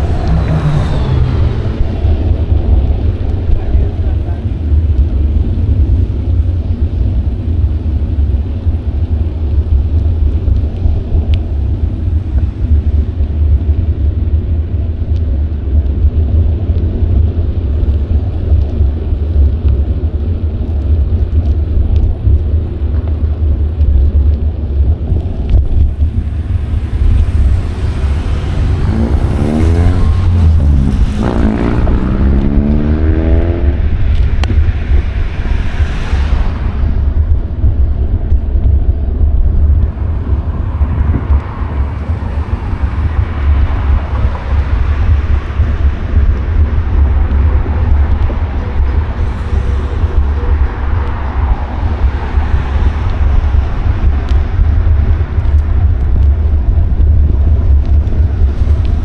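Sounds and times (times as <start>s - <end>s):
motor vehicle accelerating past: 0.0s - 3.6s, 25.9s - 37.2s
wind rumble on microphone: 0.0s - 59.0s.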